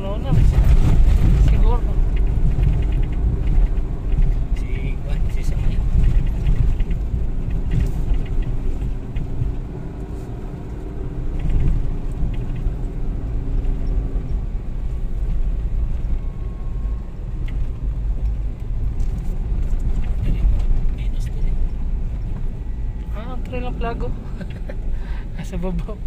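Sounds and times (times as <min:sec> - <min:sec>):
engine hum: 0:00.0 - 0:26.0
off-road vehicle driving: 0:00.0 - 0:26.0.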